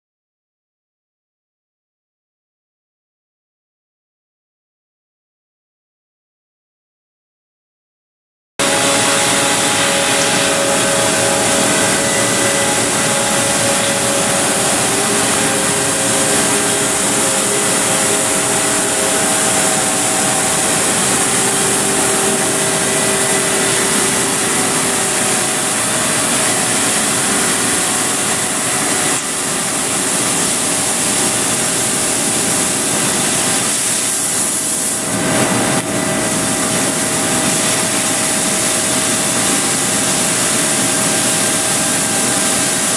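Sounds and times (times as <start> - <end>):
laser cutter hissing: 8.6 - 42.9
machine hum tones: 8.6 - 42.9.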